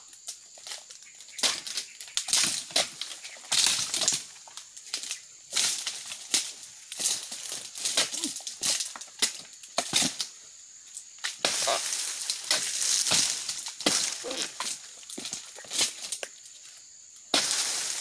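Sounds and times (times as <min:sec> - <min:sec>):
dry fronds rustling and crunching: 0:00.2 - 0:18.0
pruning tool chopping stalks: 0:11.3 - 0:16.1, 0:17.3 - 0:18.0.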